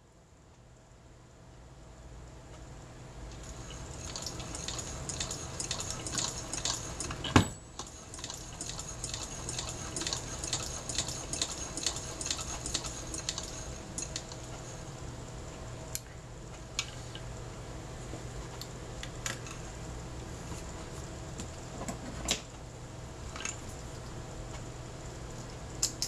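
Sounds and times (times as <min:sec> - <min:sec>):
sewing machine clicking: 0:03.3 - 0:14.8.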